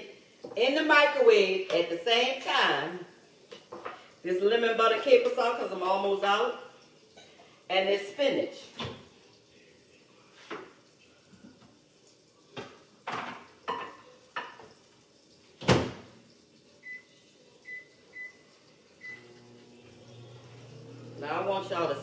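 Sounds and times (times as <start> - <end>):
microwave humming: 19.0 - 22.0.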